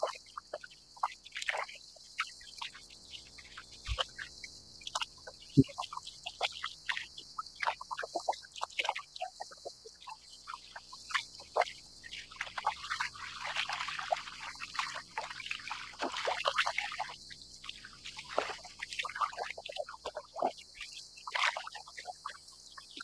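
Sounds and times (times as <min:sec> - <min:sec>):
small waves lapping against kayak: 0:07.5 - 0:22.8.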